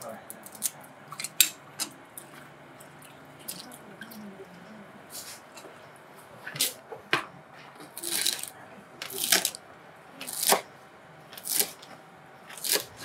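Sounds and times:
knife chopping celery on board: 10.3 - 10.6, 12.5 - 13.0.

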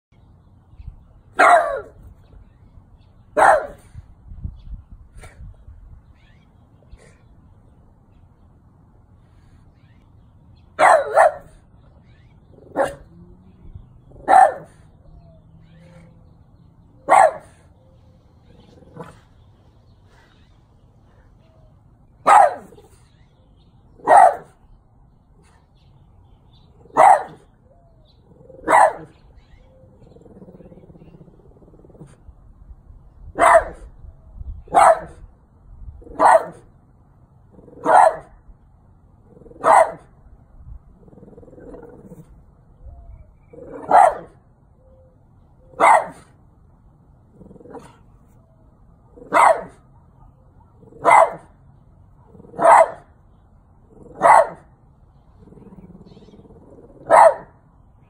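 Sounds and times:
dog barking: 1.4 - 2.0, 3.4 - 3.8, 10.8 - 11.6, 12.7 - 13.1, 14.2 - 14.8, 17.0 - 17.6, 22.2 - 22.8, 24.0 - 24.6, 26.9 - 27.4, 28.6 - 29.1, 33.4 - 33.9, 34.7 - 35.2, 36.1 - 36.6, 37.8 - 38.3, 39.6 - 40.1, 43.7 - 44.4, 45.8 - 46.3, 49.2 - 51.5, 52.5 - 53.1, 54.1 - 54.7, 57.0 - 57.6.

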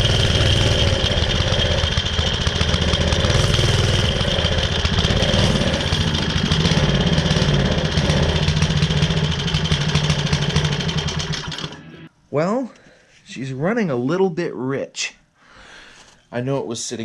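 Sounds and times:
small engine idling: 0.0 - 12.1.

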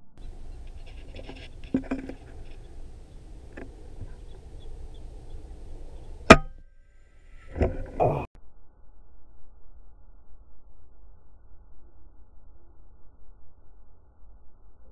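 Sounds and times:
low background noise: 0.2 - 6.6.

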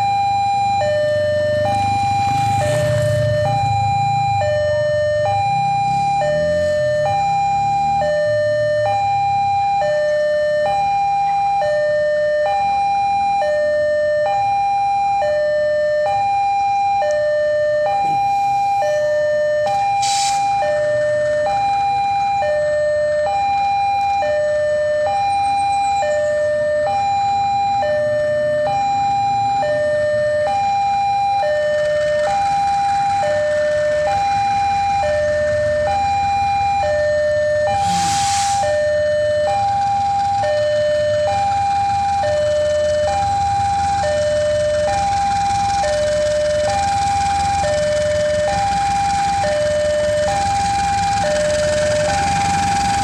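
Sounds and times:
idling diesel locomotive: 0.0 - 53.0
two-tone electronic alarm: 0.0 - 53.0
short hiss: 37.8 - 38.7.

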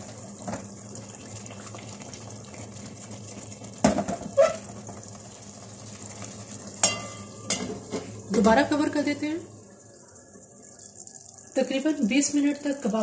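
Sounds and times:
metal pot knocking: 6.8 - 7.8.

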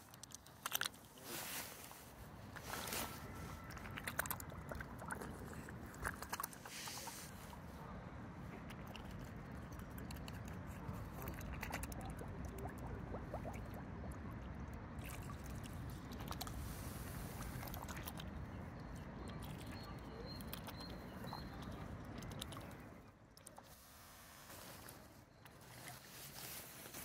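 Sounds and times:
swan bill clicking on water: 0.0 - 1.2, 3.6 - 7.7, 8.5 - 23.8.

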